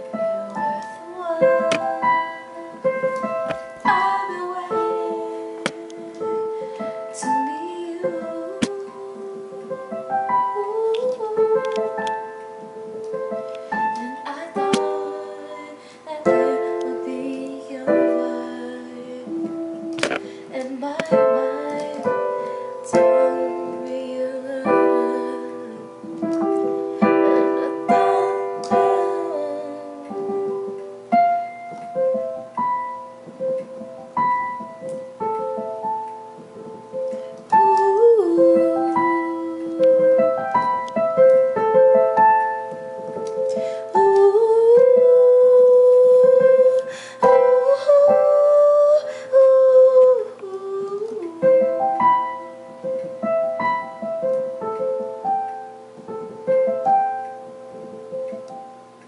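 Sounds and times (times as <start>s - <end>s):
woman singing: 0.0s - 12.4s, 13.7s - 30.8s, 37.4s - 41.0s, 43.5s - 52.5s
digital piano melody over chords: 0.0s - 59.0s.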